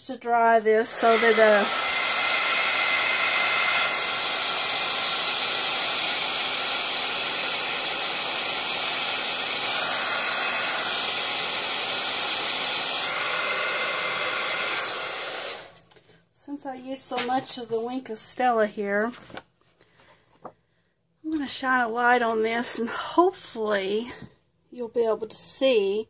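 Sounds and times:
heat gun blowing hot air: 0.9 - 15.8.

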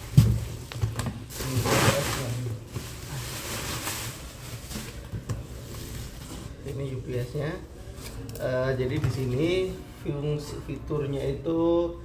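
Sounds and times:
bubble wrap rustling: 0.0 - 6.7
cardboard scraping: 1.2 - 6.6.

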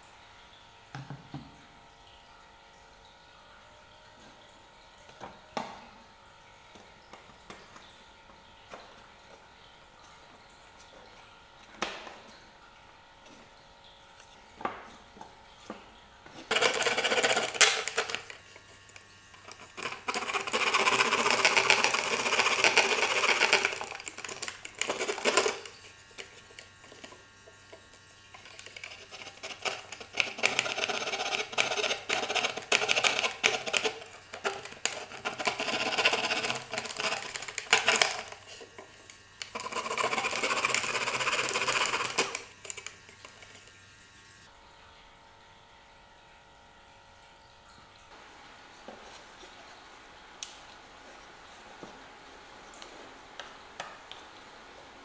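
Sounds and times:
metal tool rasping on wood strips: 28.5 - 38.6.

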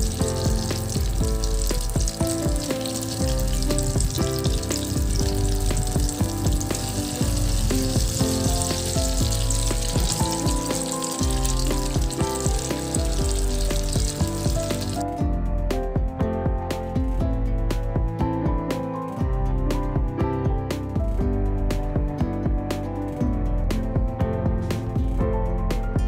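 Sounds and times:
patties sizzling in hot oil: 0.0 - 15.0
background music: 0.0 - 26.0.

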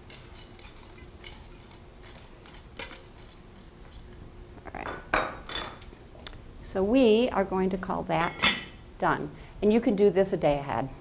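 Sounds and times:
spoon scraping and tapping pot: 0.0 - 4.0
spoon stirring stuffing: 0.0 - 4.4.

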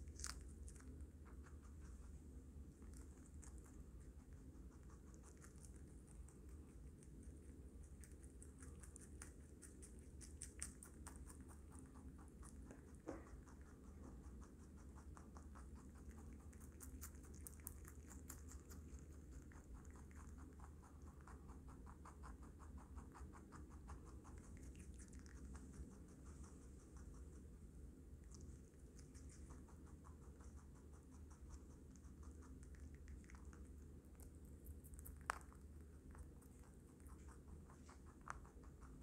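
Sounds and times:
low steady hum: 0.0 - 39.0
rabbit chewing: 0.0 - 39.0.

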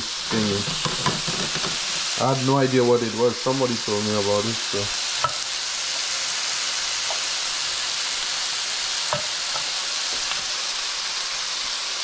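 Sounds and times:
meat sizzling in hot oil: 0.0 - 12.0.

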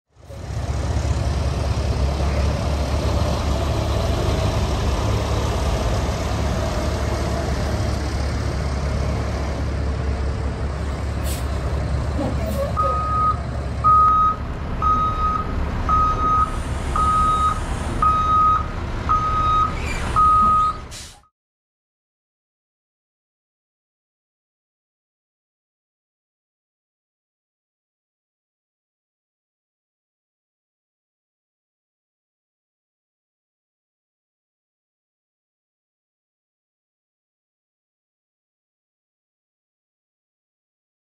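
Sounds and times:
diesel engine rumbling: 0.1 - 21.2
backup alarm beeping: 12.8 - 20.8.

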